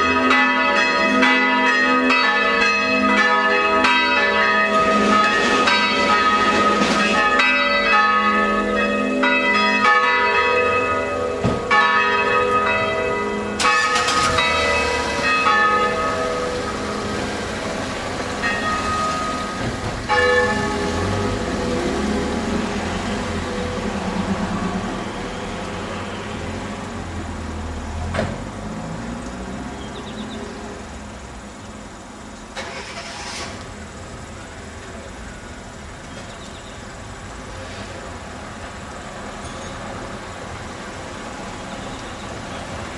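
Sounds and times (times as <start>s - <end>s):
church bells pealing: 0.0s - 26.2s.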